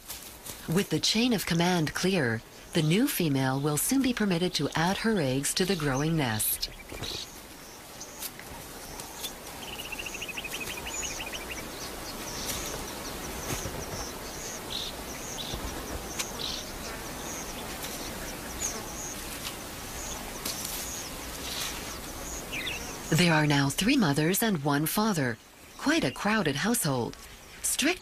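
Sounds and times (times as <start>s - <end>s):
low background noise: 0.0s - 28.0s
small birds chirping: 0.0s - 28.0s
bird trill: 8.9s - 23.2s.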